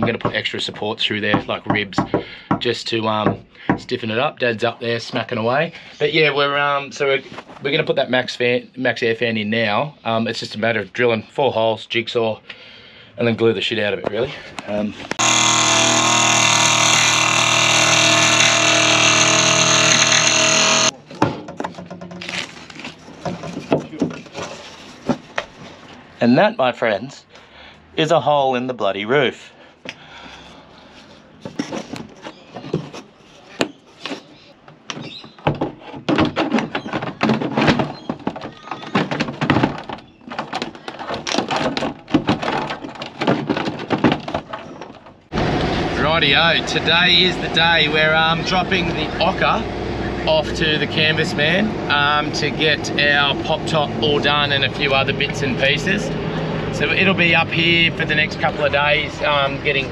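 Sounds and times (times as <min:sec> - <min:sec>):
jigsaw cutting metal panel: 0:15.2 - 0:21.0
tools knocking and clattering: 0:15.2 - 0:22.3, 0:22.9 - 0:25.6, 0:31.4 - 0:45.3.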